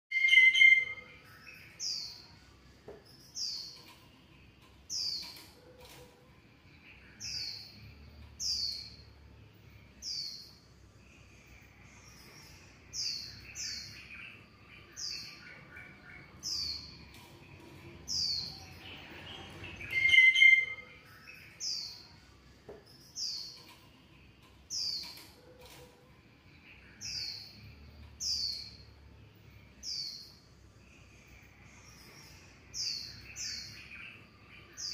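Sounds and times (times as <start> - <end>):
high chirping call: 0.1 - 2.3, 18.1 - 22.1.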